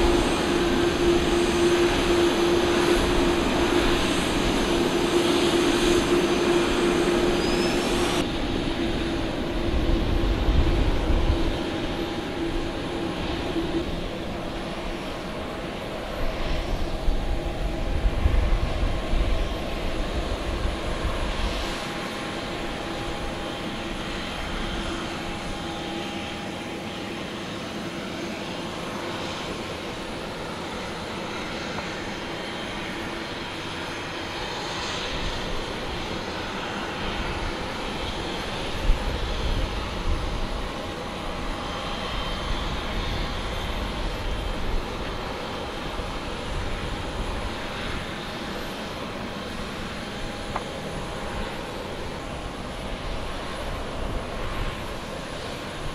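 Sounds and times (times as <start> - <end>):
jet engines humming: 0.0 - 55.9.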